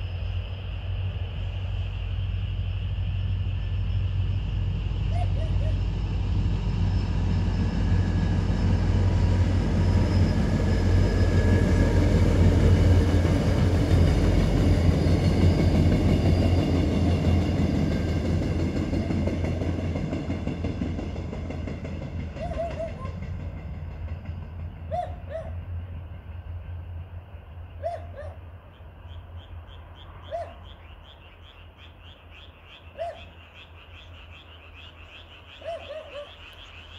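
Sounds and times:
frogs calling: 0:00.0 - 0:06.0, 0:27.5 - 0:36.9
passenger train passing: 0:00.0 - 0:36.9.

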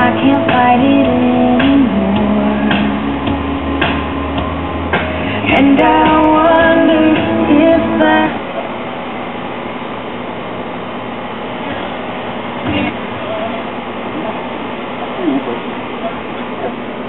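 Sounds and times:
song with female singing: 0:00.0 - 0:03.4, 0:05.0 - 0:08.6
radio static hiss: 0:05.0 - 0:17.0.

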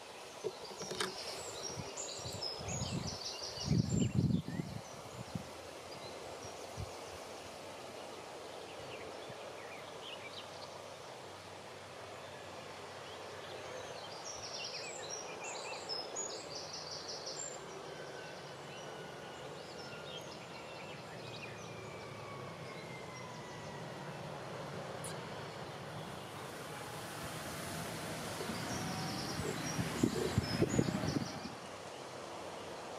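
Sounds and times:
outdoor background noise: 0:00.0 - 0:32.9
distant engine drone: 0:17.6 - 0:31.7.

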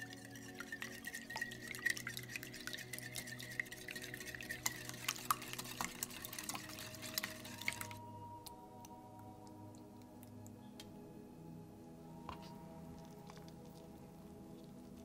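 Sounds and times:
wire whisk clicking against glass bowl: 0:00.0 - 0:08.0.

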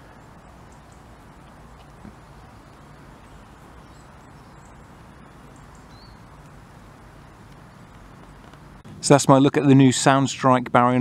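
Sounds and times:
faint high bird chirps: 0:00.0 - 0:06.5
low background rumble: 0:00.0 - 0:11.0.

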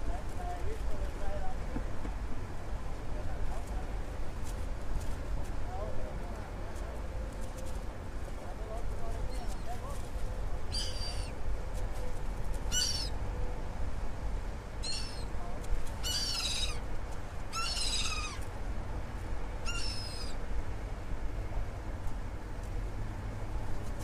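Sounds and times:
gulls calling: 0:10.7 - 0:11.4, 0:12.7 - 0:13.2, 0:14.8 - 0:15.4, 0:16.0 - 0:16.9, 0:17.5 - 0:18.4, 0:19.6 - 0:20.4.

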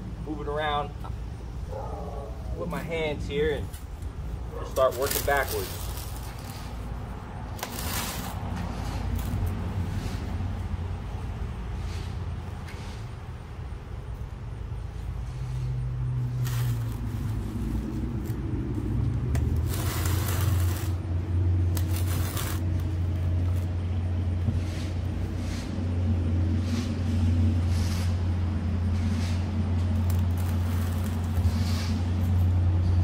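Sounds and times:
sand scraping under a level: 0:04.6 - 0:07.0, 0:07.6 - 0:10.5, 0:11.7 - 0:13.2, 0:15.1 - 0:18.5, 0:19.4 - 0:32.5
low engine hum: 0:05.8 - 0:33.0.

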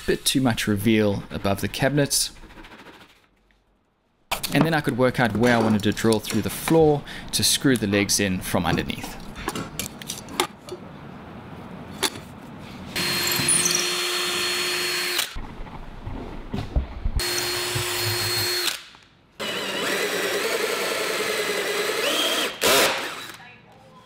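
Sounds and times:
power drill whining: 0:13.0 - 0:15.4, 0:17.2 - 0:18.8, 0:19.4 - 0:23.4.

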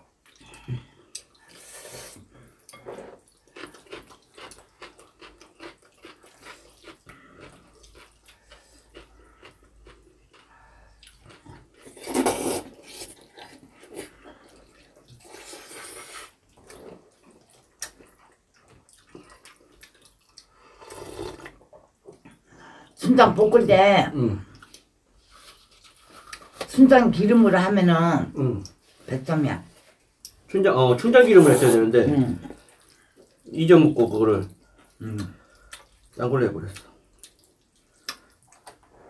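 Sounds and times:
noodles being slurped: 0:11.2 - 0:18.1, 0:19.0 - 0:21.6.

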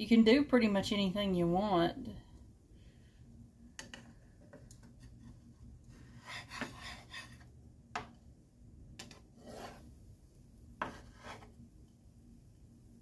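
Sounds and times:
spatula scraping a frying pan: 0:05.0 - 0:07.5, 0:09.1 - 0:10.0, 0:10.8 - 0:11.6.

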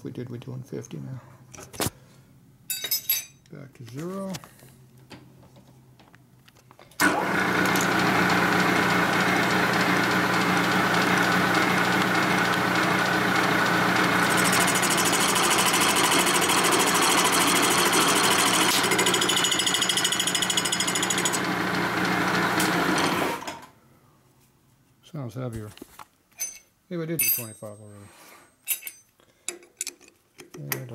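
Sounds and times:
milling machine cutting metal: 0:07.0 - 0:23.6.

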